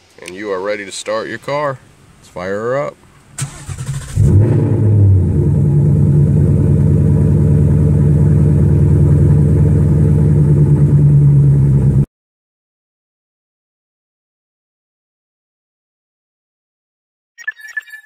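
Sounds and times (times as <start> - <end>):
car engine starting and idling: 1.2 - 12.1.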